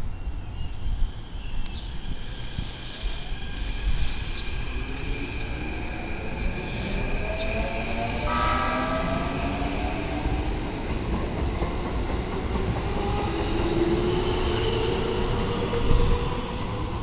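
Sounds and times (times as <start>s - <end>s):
train wheels rumbling on rails: 0.3s - 17.0s.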